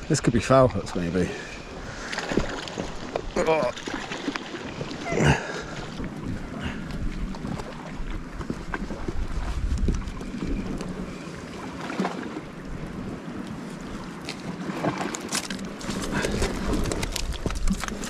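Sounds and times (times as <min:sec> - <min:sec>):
sea washing against rocks: 0:01.9 - 0:18.0
wind buffeting microphone: 0:04.7 - 0:11.4.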